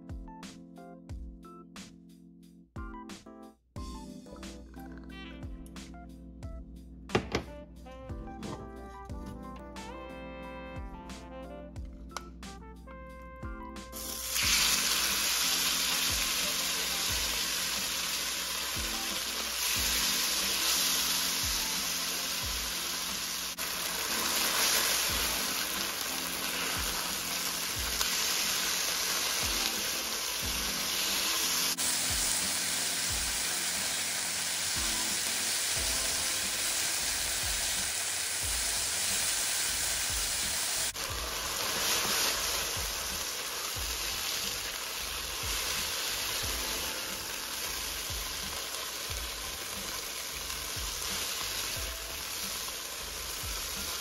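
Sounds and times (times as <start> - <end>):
chicken sizzling in hot oil: 13.9 - 54.0.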